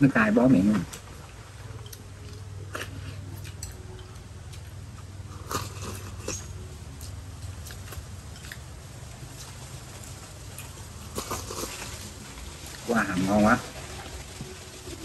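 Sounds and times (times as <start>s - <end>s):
steady low hum: 0.0s - 15.0s
chewing: 0.8s - 15.0s.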